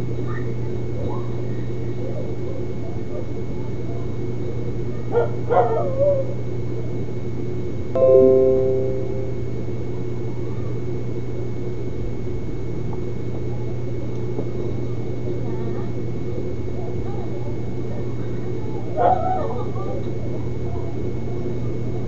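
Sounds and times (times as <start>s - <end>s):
background music: 8.0s - 9.6s
ringing note: 8.0s - 9.8s.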